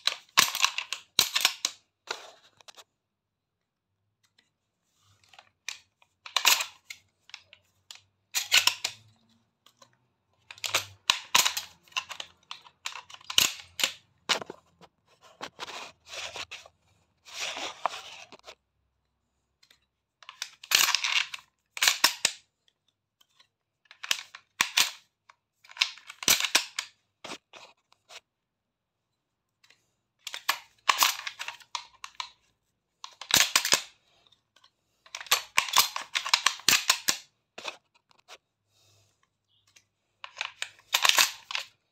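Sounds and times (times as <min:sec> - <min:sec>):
shotgun shells loading clicks: 0:05.7 - 0:07.0, 0:07.9 - 0:09.1, 0:10.5 - 0:14.0, 0:30.3 - 0:32.3, 0:33.1 - 0:33.9, 0:35.1 - 0:37.3, 0:40.2 - 0:41.8.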